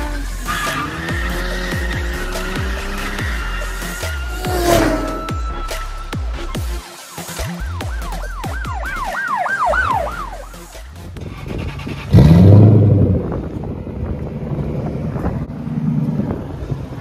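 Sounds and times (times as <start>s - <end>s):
electronic music with wailing sweep: 0.0s - 12.0s
car engine starting and idling: 9.9s - 17.0s.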